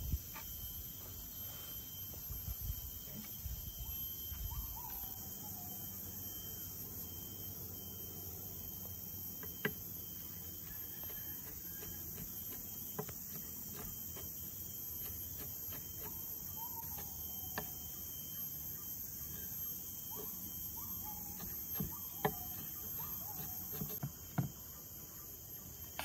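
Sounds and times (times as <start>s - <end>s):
crickets and insects droning: 0.0s - 26.0s
bird chirps: 3.8s - 6.2s, 15.0s - 24.0s.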